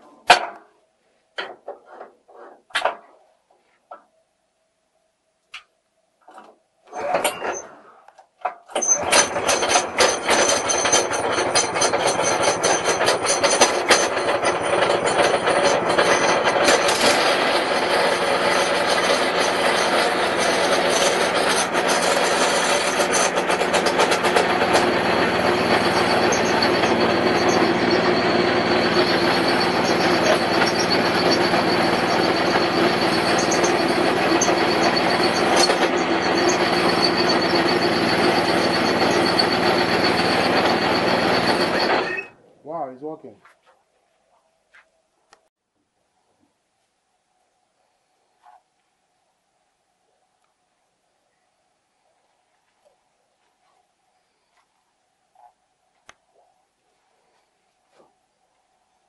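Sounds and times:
small petrol engine running: 8.8s - 42.3s.

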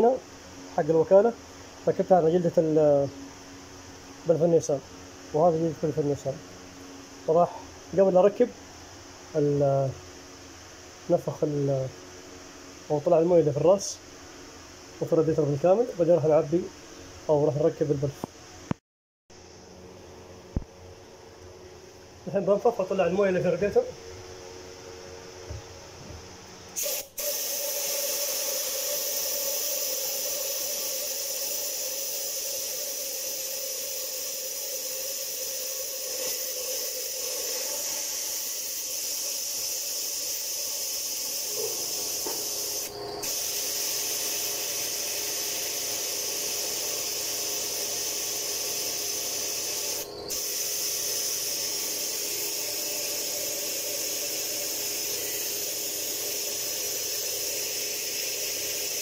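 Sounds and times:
compressed air hissing: 26.7s - 59.0s.

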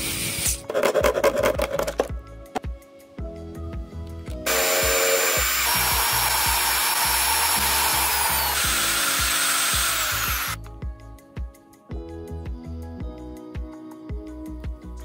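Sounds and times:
background music with a beat: 0.0s - 15.0s
electric drill motor whine: 4.5s - 10.6s.

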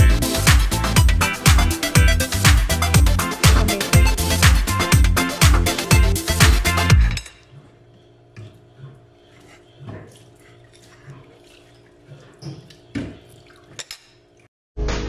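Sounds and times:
fork scraping ceramic plate: 7.1s - 11.5s.

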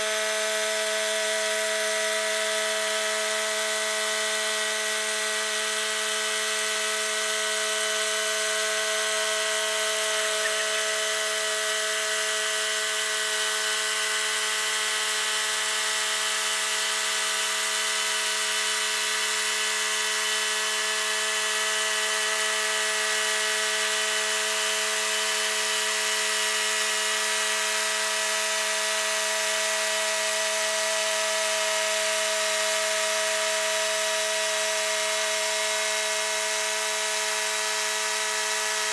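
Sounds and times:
band sawmill cutting log: 0.0s - 17.8s.

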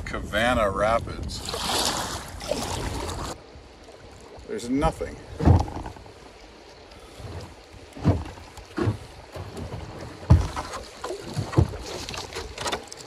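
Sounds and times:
wind: 0.0s - 13.0s
knocks against canoe hull: 8.0s - 12.8s.

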